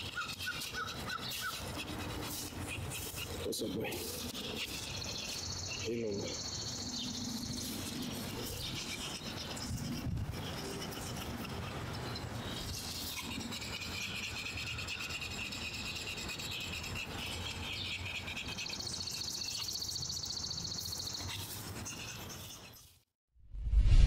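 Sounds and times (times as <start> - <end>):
birds chirping: 0.0 - 22.8
low rumble: 23.4 - 24.0.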